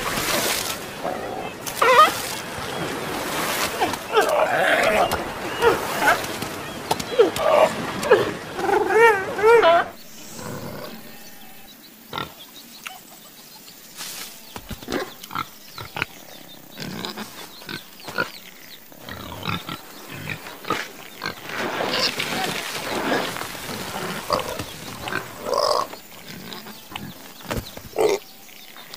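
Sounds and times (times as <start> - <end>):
pigs grunting and oinking: 3.7 - 12.4, 14.8 - 18.4, 19.0 - 27.3, 27.9 - 28.3.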